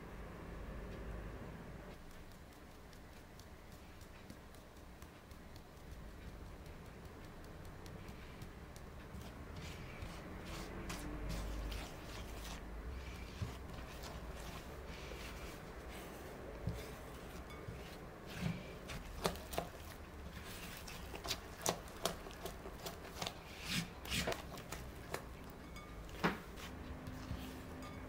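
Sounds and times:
spatula scraping batter: 7.7s - 28.0s.

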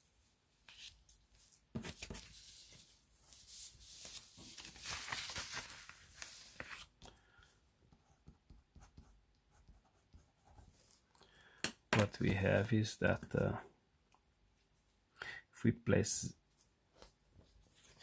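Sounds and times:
paper rustling and sliding: 0.6s - 6.9s.

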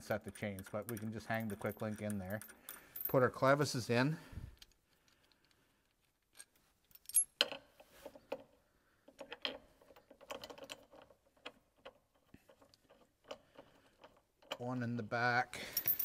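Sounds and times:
metal chain clinking and rattling: 0.0s - 3.6s, 6.2s - 8.5s, 9.1s - 14.8s, 15.6s - 16.0s.

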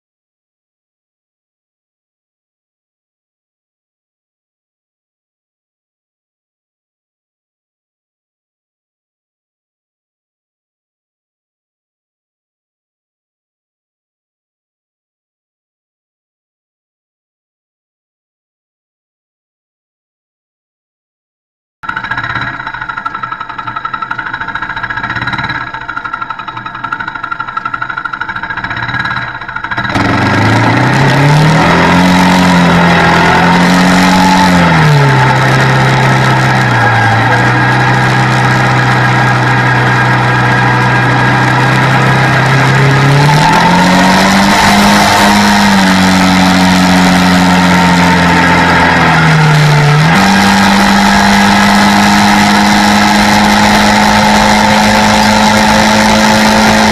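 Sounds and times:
quad engine revving: 21.9s - 56.9s
wind and road noise: 29.1s - 56.9s.

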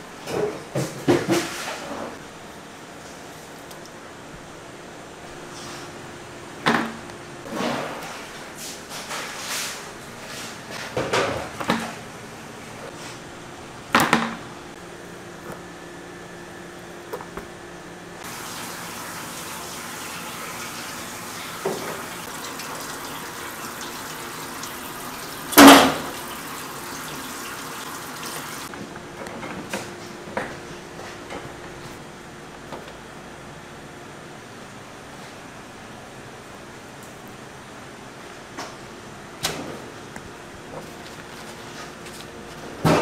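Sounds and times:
running water: 18.2s - 28.7s.

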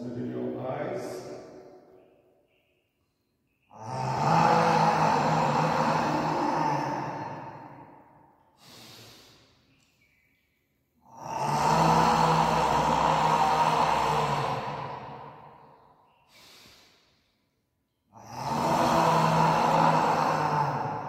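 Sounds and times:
forceful throaty exhalations: 3.7s - 9.7s, 11.1s - 17.3s, 18.2s - 21.0s
faint inhale: 8.5s - 9.8s, 12.5s - 17.5s.

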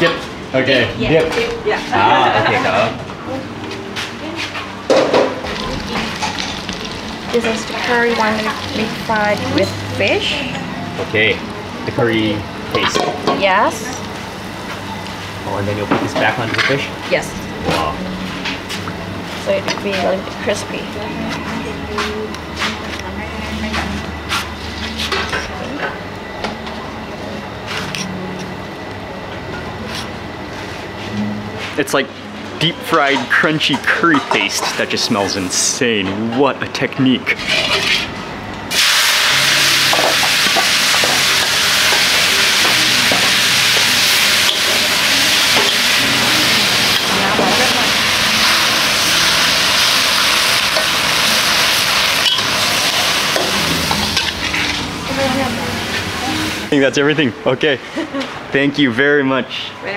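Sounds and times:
steady low hum: 0.0s - 59.9s
greens sizzling in a wok: 5.4s - 10.5s, 38.7s - 56.8s
metal spatula stirring: 37.4s - 38.1s
metal spoon scraping strainer: 37.4s - 38.1s.

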